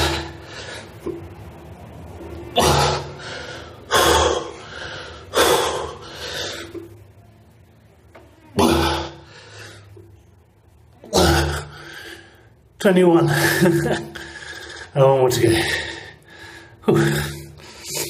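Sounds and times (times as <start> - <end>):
man breathing hard: 0.0 - 1.2, 2.6 - 6.8, 9.2 - 10.0, 13.3 - 18.0.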